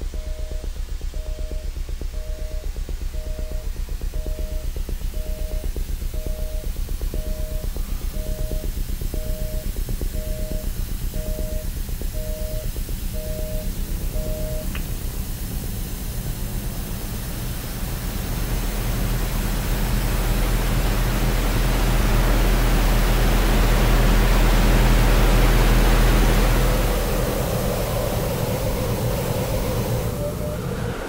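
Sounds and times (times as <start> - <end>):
two-tone electronic beep: 0.1 - 14.7.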